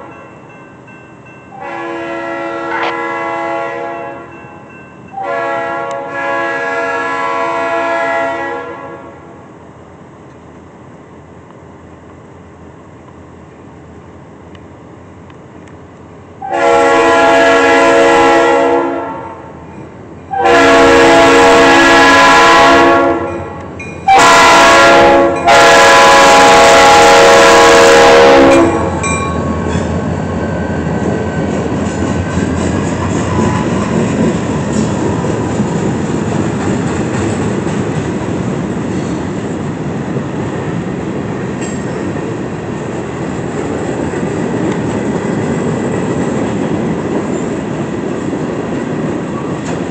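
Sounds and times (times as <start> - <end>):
train rumbling past: 0.0 - 49.9
train air horn blasts: 1.5 - 4.3, 5.1 - 9.4, 16.4 - 19.6, 20.3 - 29.0
wheels clicking over rail joints: 30.8 - 49.9.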